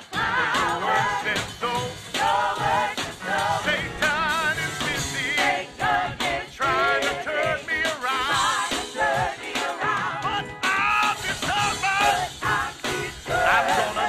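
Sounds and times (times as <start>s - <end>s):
band accompaniment: 0.0s - 14.0s
gospel choir singing: 0.0s - 14.0s
lead vocalist singing: 9.6s - 14.0s.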